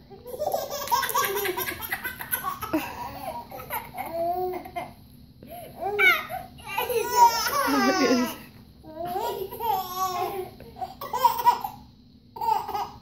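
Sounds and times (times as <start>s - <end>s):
baby laughing and giggling: 0.3s - 4.9s, 5.8s - 8.4s, 9.0s - 11.8s.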